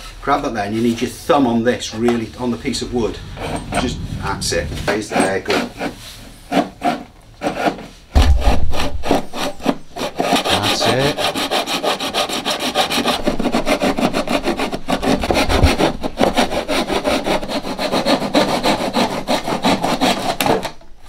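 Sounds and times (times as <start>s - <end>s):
hand saw cutting wood: 5.1s - 20.8s.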